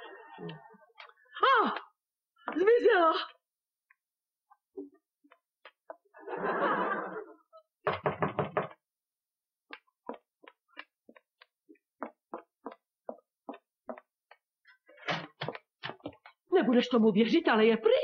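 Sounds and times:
footsteps on hard floor: 2.4 - 6.2, 9.6 - 16.4.

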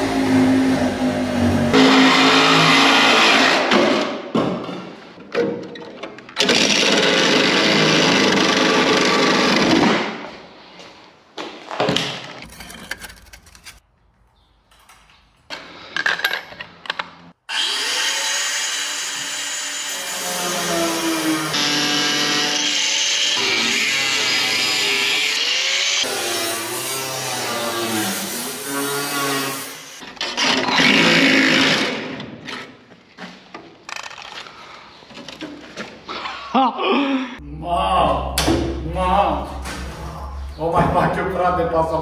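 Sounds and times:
angle grinder on sheet metal: 0.0 - 3.7, 6.5 - 9.8, 17.5 - 32.2.

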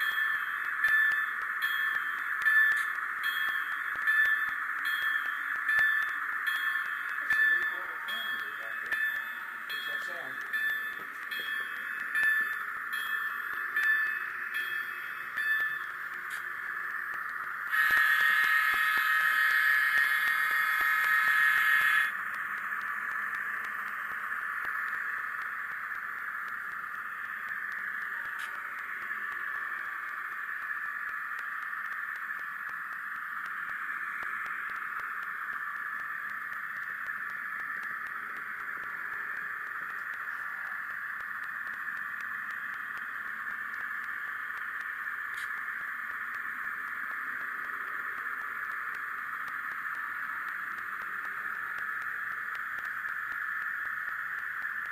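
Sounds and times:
steady steam hiss: 0.0 - 54.9
multi-tone train whistle: 17.6 - 22.2.

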